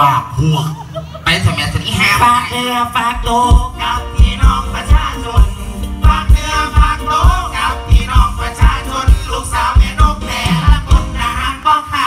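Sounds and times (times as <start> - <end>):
live band music: 2.2 - 12.0
voices singing: 2.3 - 12.0
heavy kick-drum beat: 3.2 - 11.6.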